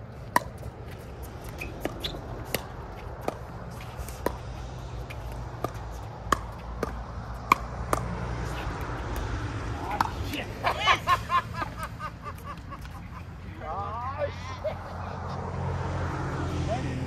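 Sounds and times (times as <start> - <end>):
ball bouncing on hard court: 0.2 - 10.4.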